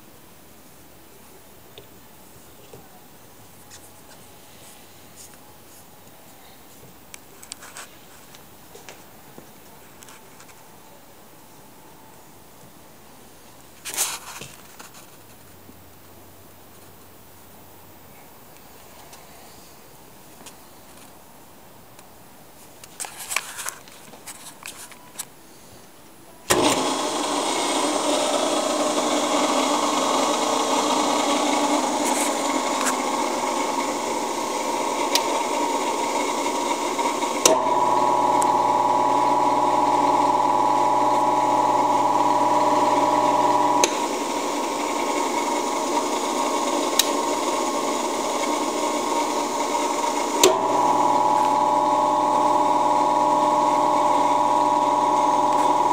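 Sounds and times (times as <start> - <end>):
electric motor hum and whine: 26.5 - 55.9
mixer motor hum with whine: 26.5 - 55.9.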